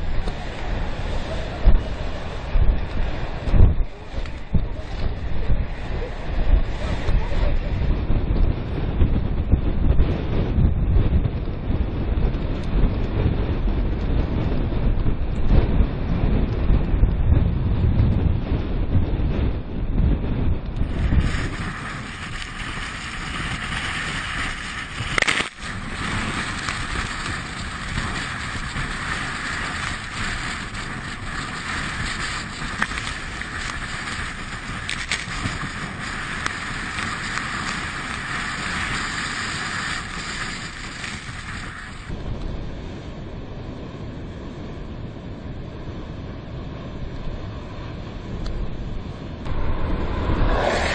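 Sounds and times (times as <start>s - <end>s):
wind buffeting microphone: 0.0s - 50.9s
surf breaking on rocks: 20.8s - 42.1s.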